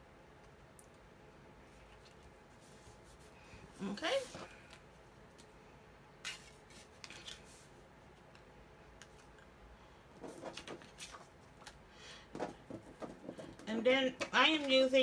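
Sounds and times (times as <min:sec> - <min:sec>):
paper taps and rustles: 0:10.2 - 0:14.9.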